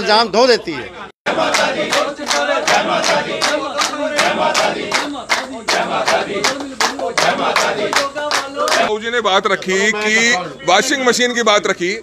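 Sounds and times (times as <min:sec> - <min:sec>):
men clapping in rhythm: 0:01.3 - 0:09.0.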